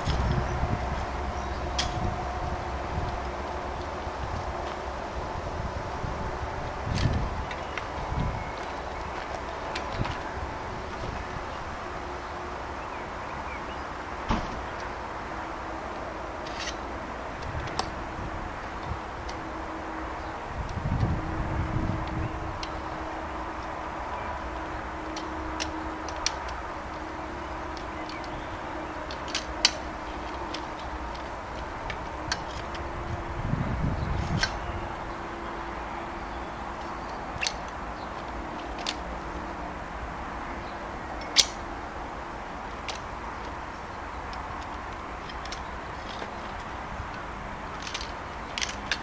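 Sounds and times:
low rumble: 0:00.0 - 0:11.7
bike frame clamps clicking: 0:16.4 - 0:18.0, 0:25.0 - 0:32.9, 0:36.8 - 0:39.1, 0:41.2 - 0:41.8, 0:42.6 - 0:49.0.

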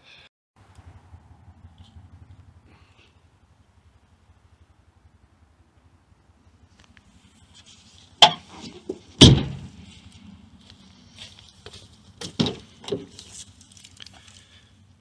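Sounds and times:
sharp knocks and thumps: 0:08.2 - 0:09.8, 0:12.2 - 0:13.2.

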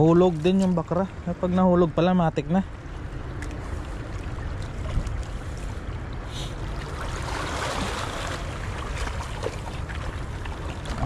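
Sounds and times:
shallow seawater sloshing: 0:02.8 - 0:11.0
wind rumbling on microphone: 0:02.8 - 0:11.0.

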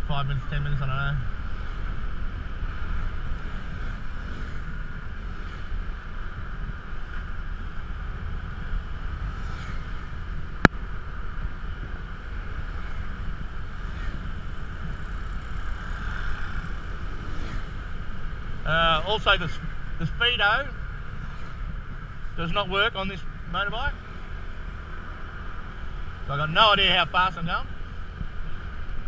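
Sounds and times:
scooter engine hum: 0:00.0 - 0:22.4
wind rumble on microphone: 0:00.0 - 0:29.0.

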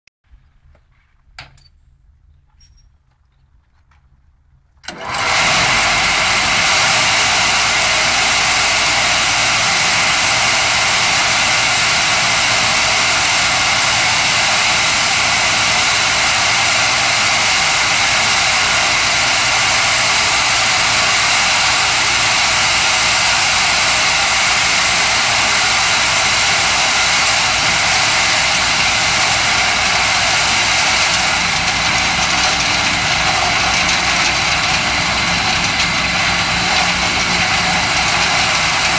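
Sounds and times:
vibrating soil screener running: 0:04.8 - 0:38.9.

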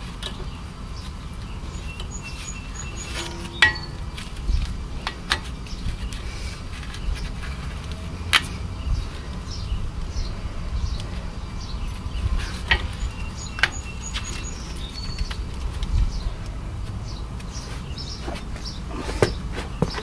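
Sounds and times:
steady low rumble: 0:00.0 - 0:18.9.

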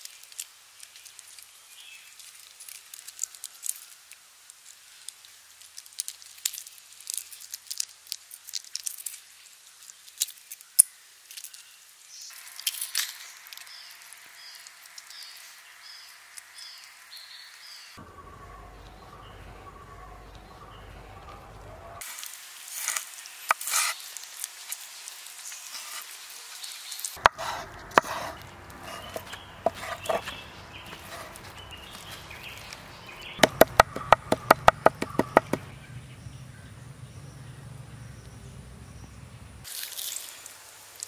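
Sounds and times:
cleaver chopping meat on wood: 0:27.2 - 0:30.4, 0:33.4 - 0:35.7
knocks and rustling: 0:27.2 - 0:32.2, 0:33.4 - 0:35.7.

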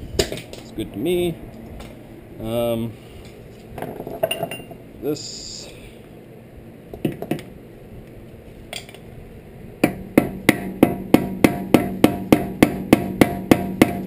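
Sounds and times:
hammer striking metal tool: 0:09.8 - 0:14.0.

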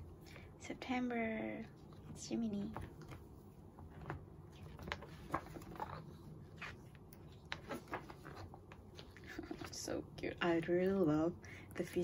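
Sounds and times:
paper pages rustling: 0:02.6 - 0:10.0.

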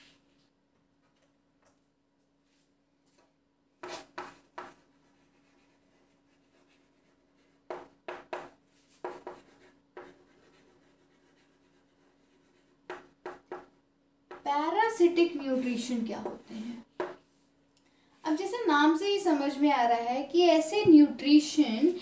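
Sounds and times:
pen scratching on surface: 0:03.8 - 0:14.4.

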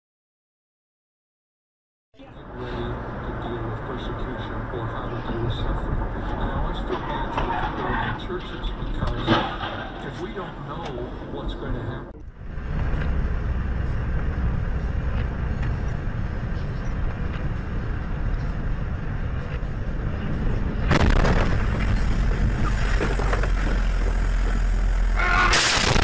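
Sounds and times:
vehicle rumble and road noise: 0:02.2 - 0:26.0
loud rushing noise: 0:17.5 - 0:26.0.

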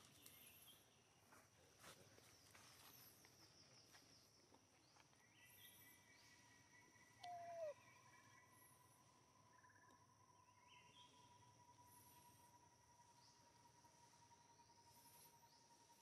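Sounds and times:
birds chirping: 0:02.2 - 0:08.7
insects trilling: 0:05.3 - 0:16.0
downward gliding call: 0:07.2 - 0:07.8.

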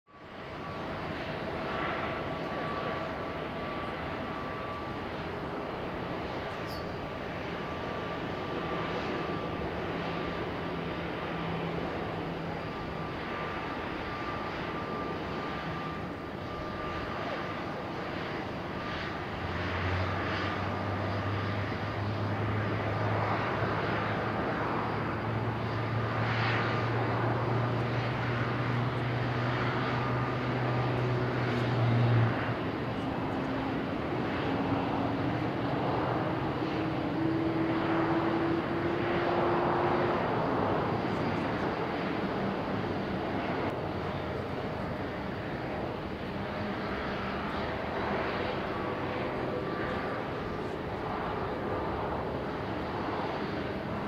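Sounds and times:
jet engines humming: 0:00.1 - 0:54.0
low engine drone: 0:00.1 - 0:54.0
rising whine: 0:00.1 - 0:54.0.

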